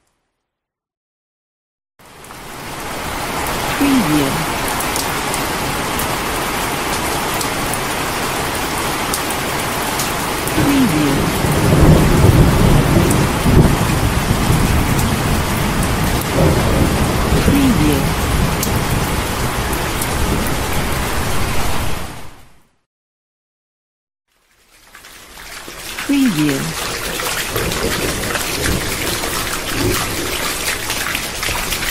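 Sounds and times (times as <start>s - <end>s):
heavy rain falling: 2.0s - 22.4s, 24.6s - 31.9s
thunder rumbling: 10.5s - 20.8s.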